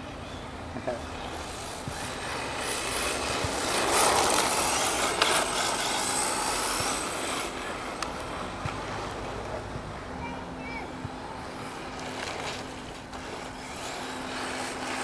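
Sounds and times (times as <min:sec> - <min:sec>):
toy car tyres hissing on grit: 0:01.3 - 0:09.2, 0:12.4 - 0:15.0.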